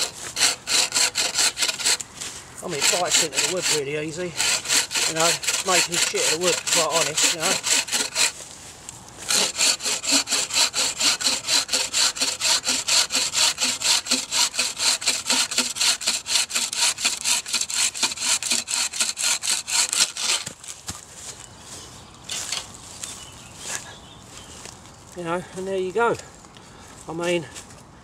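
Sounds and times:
saw cutting through log: 0:00.0 - 0:02.0, 0:02.6 - 0:08.4, 0:09.3 - 0:20.6.

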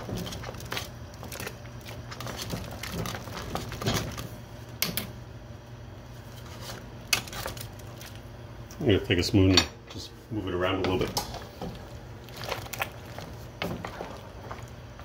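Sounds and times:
whisk stirring liquid: 0:00.0 - 0:04.3, 0:10.9 - 0:15.0
steady low hum: 0:00.0 - 0:15.0.

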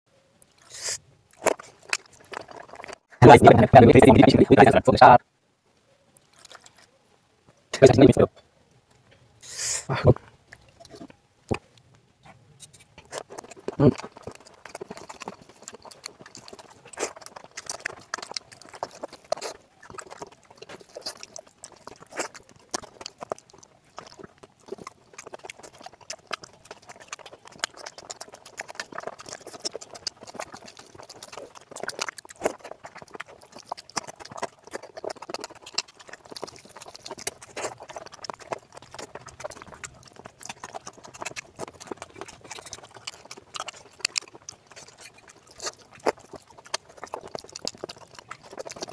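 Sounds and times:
wet smacking and chewing: 0:00.4 - 0:04.7, 0:06.2 - 0:07.0, 0:08.9 - 0:48.9
fingers squelching rice into curry: 0:12.7 - 0:48.9.

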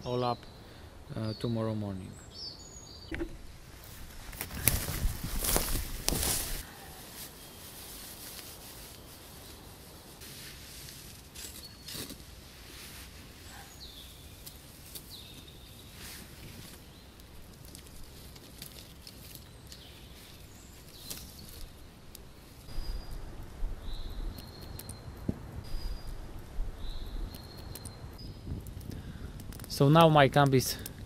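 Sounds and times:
bird chirping: 0:00.0 - 0:03.6, 0:13.4 - 0:17.5, 0:19.2 - 0:28.6.

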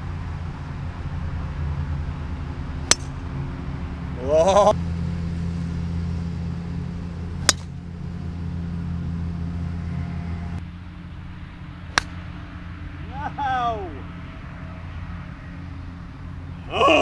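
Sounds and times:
steady low rumble: 0:00.0 - 0:16.8
golf club striking ball off turf: 0:02.9 - 0:03.1, 0:07.4 - 0:07.7, 0:11.9 - 0:12.2
golf driver cracking ball: 0:02.9 - 0:03.1, 0:07.4 - 0:07.7, 0:11.9 - 0:12.2.

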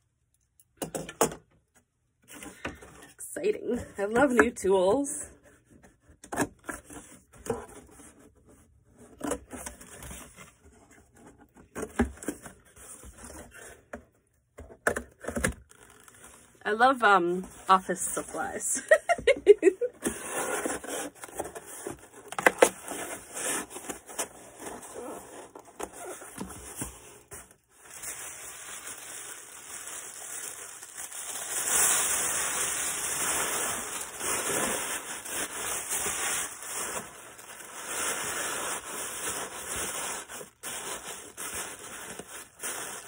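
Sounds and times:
packing materials crinkling: 0:15.3 - 0:16.6, 0:20.1 - 0:43.0.

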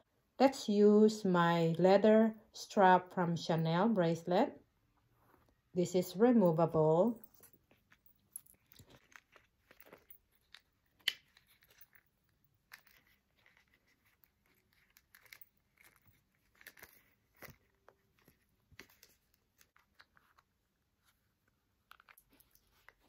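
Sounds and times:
soft rustles: 0:07.1 - 0:23.0.

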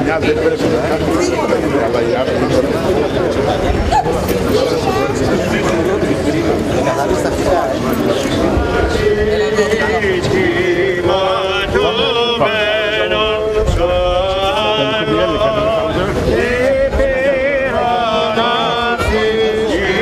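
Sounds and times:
men chanting a hymn: 0:05.3 - 0:20.0.

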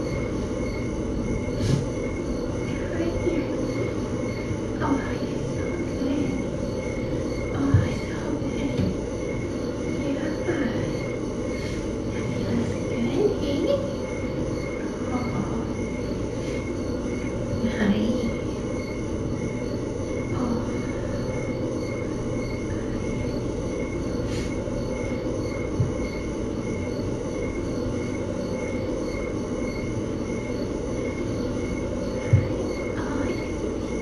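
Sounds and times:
low mechanical hum: 0:00.0 - 0:34.0
soft thumps: 0:32.2 - 0:32.6.

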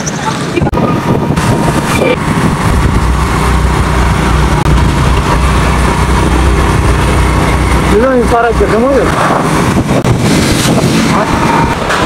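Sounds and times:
road and wind noise: 0:00.0 - 0:12.0
vehicle engine drone: 0:00.0 - 0:12.0.

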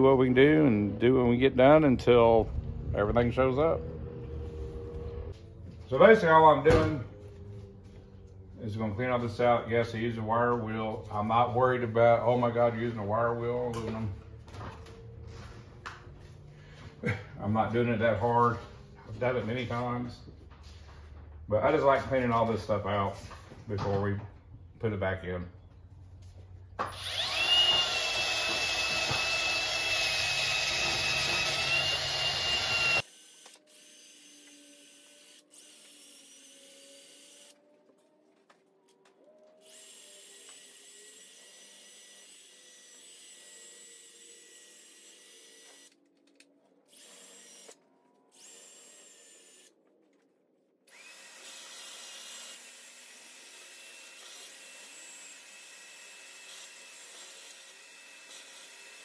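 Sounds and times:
drill spinning wire brush on metal: 0:26.9 - 0:37.6, 0:39.6 - 0:46.0, 0:50.9 - 0:59.0.

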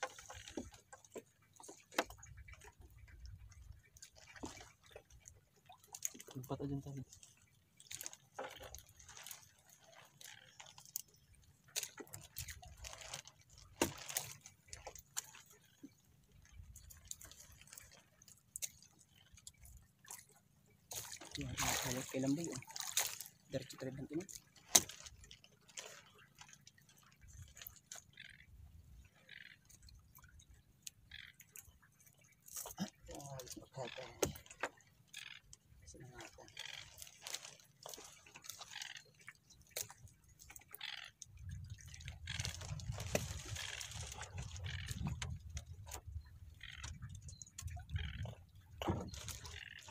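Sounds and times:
wet net rustling: 0:07.8 - 0:11.0, 0:11.7 - 0:15.2, 0:20.9 - 0:23.4, 0:24.5 - 0:26.6, 0:36.6 - 0:39.0, 0:41.9 - 0:44.8.

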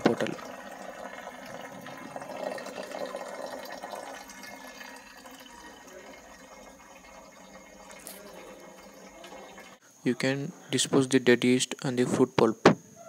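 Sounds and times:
liquid trickling through pipe: 0:00.0 - 0:09.8.

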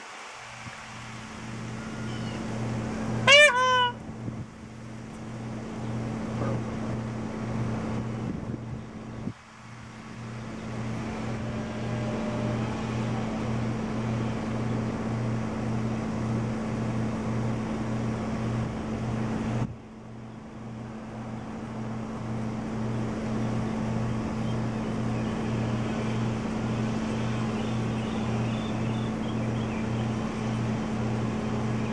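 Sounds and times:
wind noise on microphone: 0:00.4 - 0:19.8
pulsing low hum: 0:00.5 - 0:31.9.

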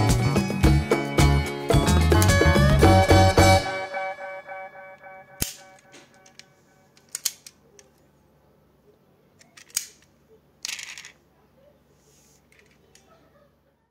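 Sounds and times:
metal model car clicks: 0:05.4 - 0:07.9, 0:09.4 - 0:11.2.

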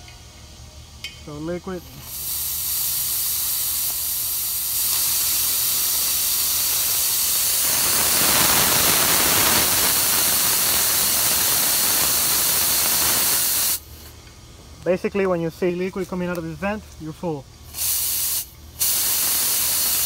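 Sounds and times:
gas hissing from valve: 0:01.8 - 0:14.1, 0:17.7 - 0:20.0.

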